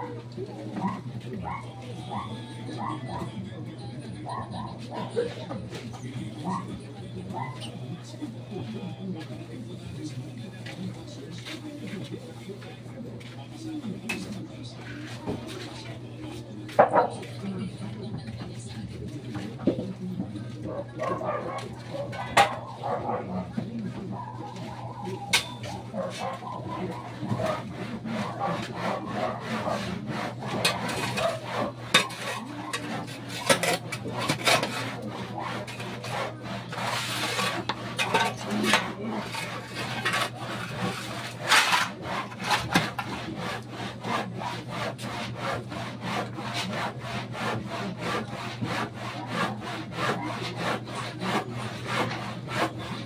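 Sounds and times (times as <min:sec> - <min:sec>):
hand saw cutting wood: 0:21.0 - 0:53.0.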